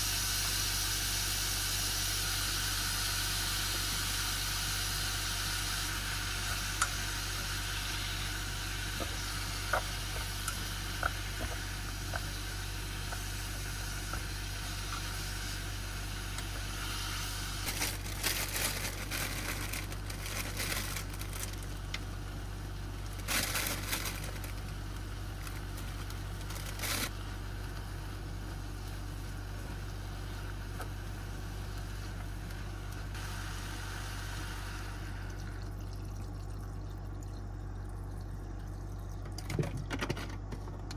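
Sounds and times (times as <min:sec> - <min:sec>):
plastic bag crinkling: 0:17.6 - 0:22.0, 0:23.0 - 0:27.1.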